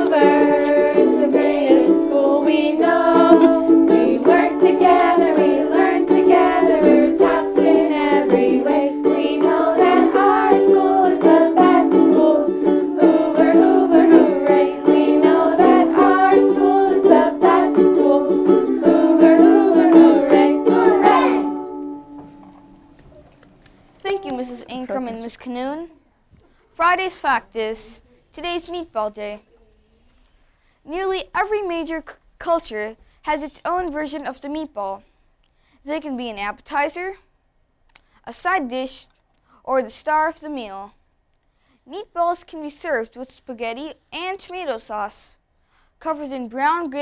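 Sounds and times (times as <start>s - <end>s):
children and women singing: 0.0s - 21.6s
ukuleles strumming: 0.0s - 23.2s, 24.0s - 25.1s.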